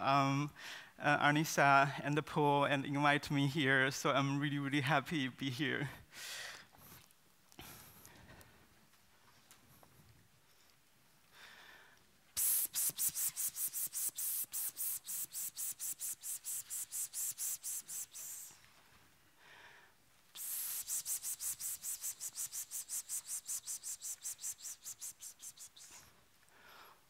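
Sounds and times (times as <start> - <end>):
woman breathing in: 6.1 - 6.7, 11.3 - 12.0, 19.4 - 20.0
woman's hissed breath puffs: 11.4 - 18.8, 19.4 - 27.0.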